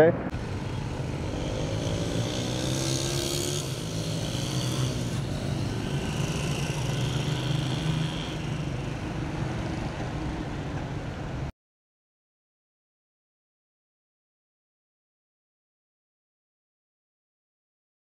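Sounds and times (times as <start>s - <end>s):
cars driving past: 0.2s - 11.5s
motorcycles driving past: 0.3s - 11.5s.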